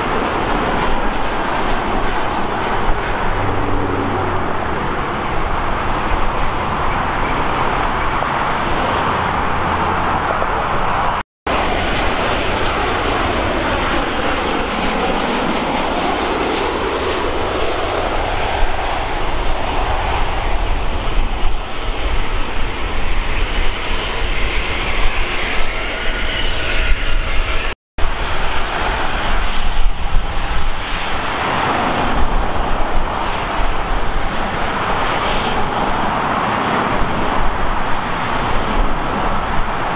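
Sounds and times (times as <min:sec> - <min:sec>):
jet engines passing: 0:00.0 - 0:39.9.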